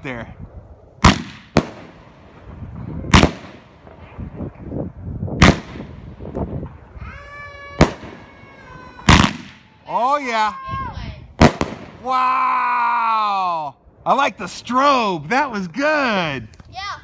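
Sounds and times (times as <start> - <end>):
firework bangs: 1.0 - 9.9, 11.4 - 12.2
firework crackles: 1.0 - 10.2, 11.3 - 12.2.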